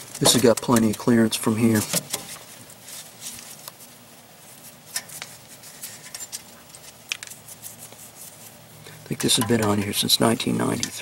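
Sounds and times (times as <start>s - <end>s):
hand clicking and rustling on metal: 0.0s - 3.9s, 4.6s - 11.0s.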